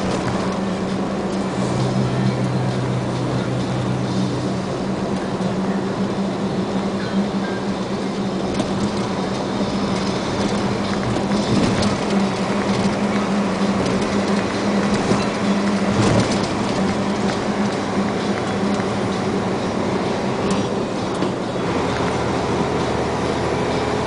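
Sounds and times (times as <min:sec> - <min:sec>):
engine drone: 0:00.0 - 0:24.0
tyre road noise: 0:00.0 - 0:24.0
vehicle bumps: 0:08.4 - 0:18.9.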